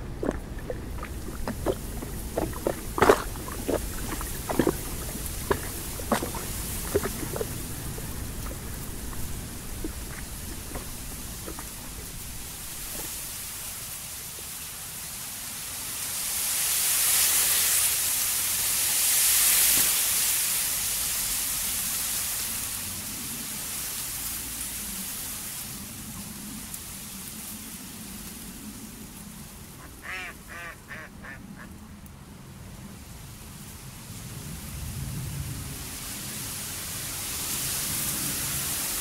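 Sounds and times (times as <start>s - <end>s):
steady rushing hiss: 0.0s - 31.1s
duck quacking: 29.8s - 31.7s.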